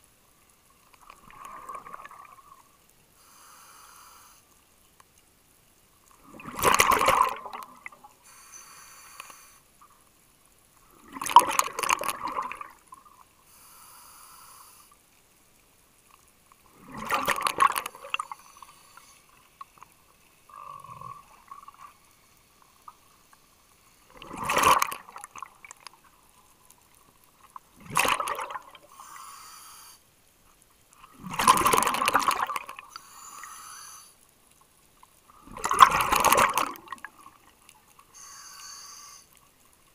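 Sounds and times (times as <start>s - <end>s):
exhaled bubbles rushing: 1.2s - 2.5s, 6.2s - 8.0s, 11.0s - 12.8s, 16.7s - 18.4s, 24.1s - 25.5s, 27.8s - 28.8s, 31.1s - 32.8s, 35.4s - 37.2s
regulator inhale hiss: 3.2s - 4.6s, 8.2s - 9.7s, 13.4s - 15.0s, 18.2s - 19.4s, 28.9s - 30.1s, 32.9s - 34.2s, 38.1s - 39.4s.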